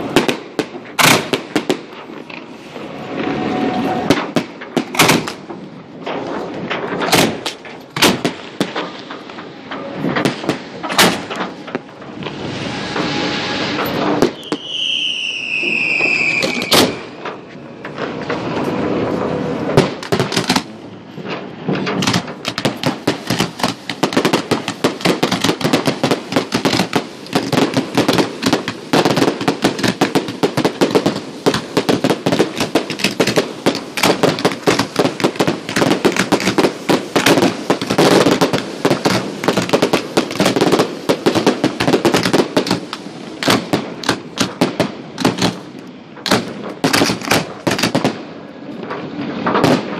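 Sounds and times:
firework cracks and bangs: 0.0s - 49.9s
firework whistle falling: 2.6s - 4.4s, 11.1s - 17.4s.

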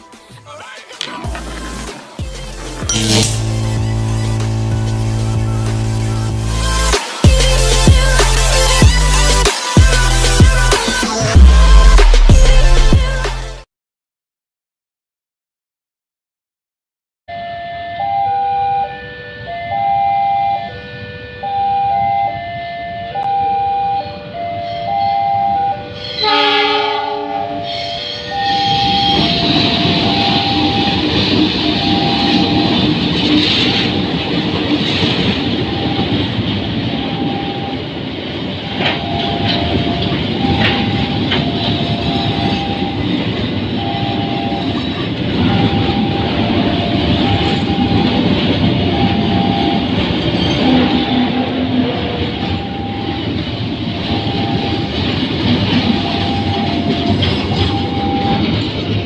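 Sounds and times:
freight train rumbling past: 1.2s - 13.1s, 19.0s - 59.0s
locomotive horn: 2.5s - 8.8s, 17.3s - 34.1s, 38.6s - 58.6s
two-tone crossing warning chime: 2.5s - 9.0s, 17.3s - 59.0s
wheels clanking over rail joints: 28.1s - 59.0s.

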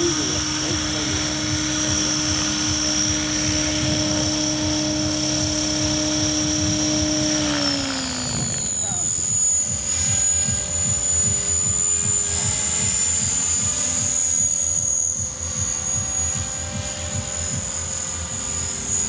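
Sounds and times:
model helicopter whine: 0.0s - 19.0s
rotor low pulsing: 0.0s - 19.0s.

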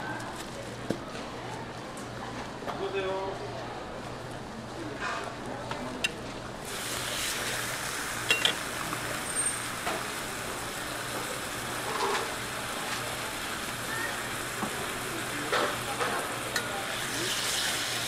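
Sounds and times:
bacon sizzling on a griddle: 6.6s - 18.0s.

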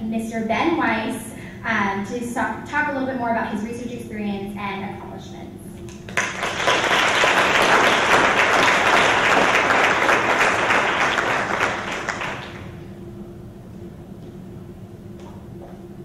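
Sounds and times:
audience applauding: 6.1s - 12.8s.

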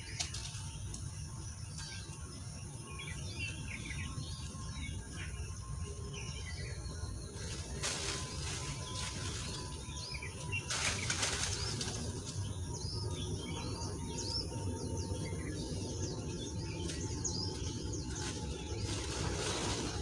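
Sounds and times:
small birds chirping: 0.0s - 20.0s
steady low rumble: 0.0s - 20.0s
rustling swishes: 18.0s - 20.0s.

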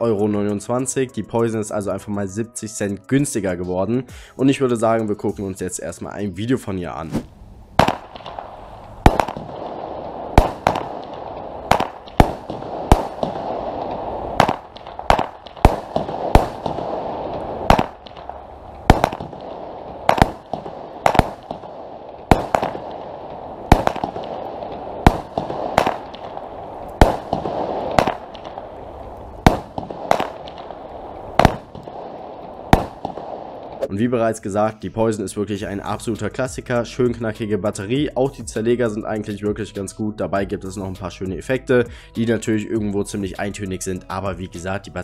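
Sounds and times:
firework launch thumps: 7.0s - 19.4s
firework shells bursting: 7.2s - 33.9s.

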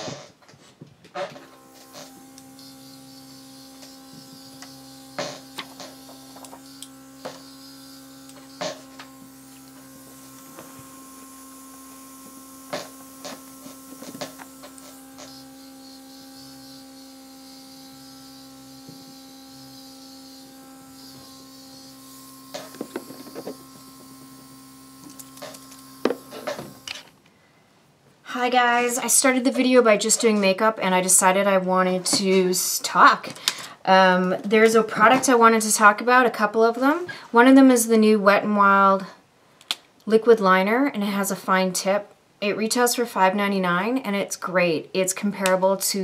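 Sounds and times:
compressor humming: 1.2s - 27.2s
airbrush hissing air: 1.8s - 26.8s.

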